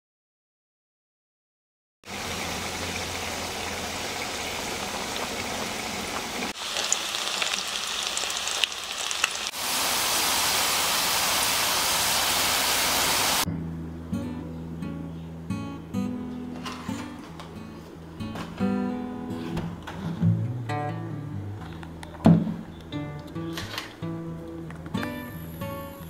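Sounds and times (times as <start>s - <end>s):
chicken frying in hot oil: 2.0s - 13.5s
oil popping and crackling: 2.3s - 13.4s.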